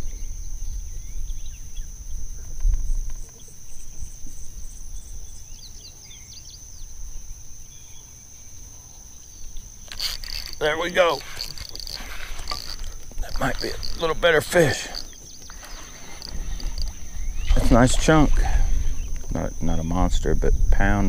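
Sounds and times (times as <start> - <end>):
insects trilling: 0.0 - 21.0
bird chirps: 9.9 - 17.8.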